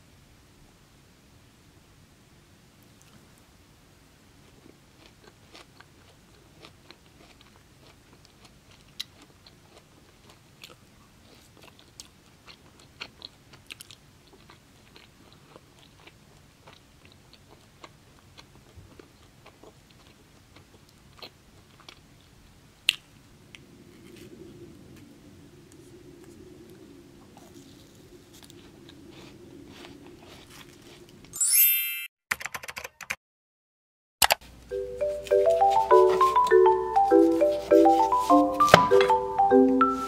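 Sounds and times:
person chewing crunchy food: 4.4 - 23.0, 25.8 - 31.4, 34.7 - 40.0.

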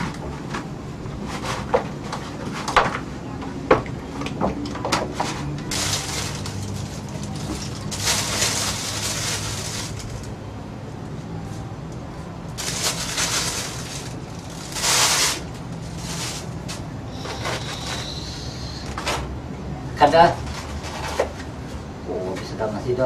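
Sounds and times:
plastic bags rustling: 5.1 - 10.4, 12.4 - 18.2.

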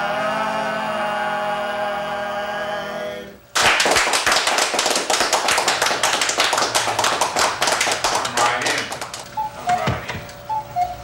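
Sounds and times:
men singing a cappella: 0.0 - 3.5
people clapping: 3.5 - 9.8.

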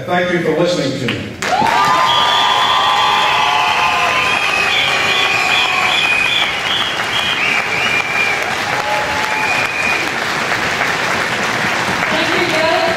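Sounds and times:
voices cheering: 1.4 - 10.4
crowd applauding: 1.4 - 12.9.

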